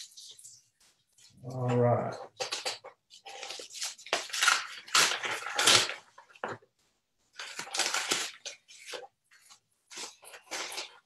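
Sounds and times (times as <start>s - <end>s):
paper crinkling and rustling: 2.3s - 11.0s.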